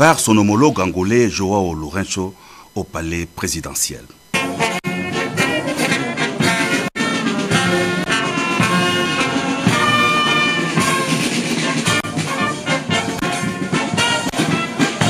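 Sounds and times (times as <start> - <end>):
military brass band playing: 4.4 - 15.0.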